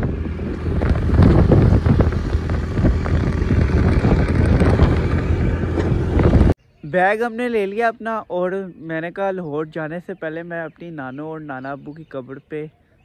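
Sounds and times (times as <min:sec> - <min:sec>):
vehicle rumbling on road: 0:00.0 - 0:06.6
wind buffeting microphone: 0:00.0 - 0:06.6.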